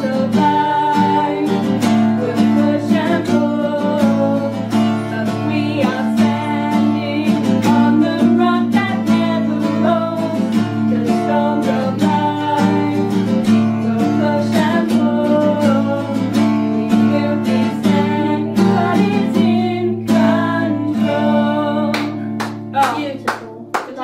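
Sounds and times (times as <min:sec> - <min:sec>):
women singing: 0:00.0 - 0:23.5
strummed acoustic guitar: 0:00.0 - 0:24.0.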